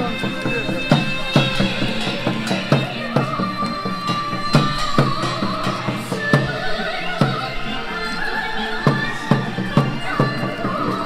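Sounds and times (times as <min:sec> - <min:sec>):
barrel drums beaten with sticks: 0:00.0 - 0:07.7
folk dance music melody: 0:00.0 - 0:11.0.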